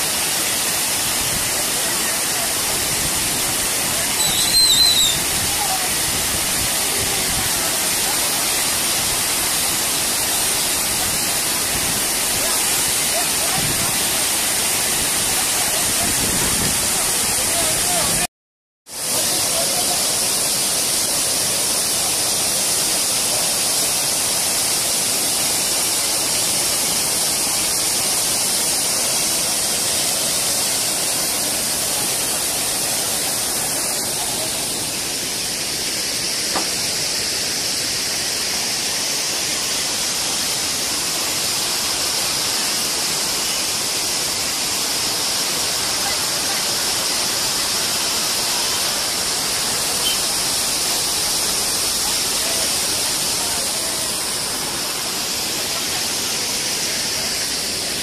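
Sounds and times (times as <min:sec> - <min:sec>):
waterfall roaring: 0:00.0 - 0:18.3, 0:18.9 - 0:58.0.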